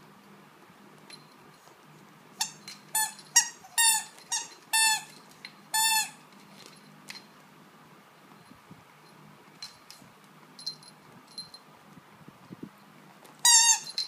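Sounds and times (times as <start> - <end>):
squeaky toy squeaking: 2.4 - 5.1, 5.7 - 6.2, 13.4 - 14.0.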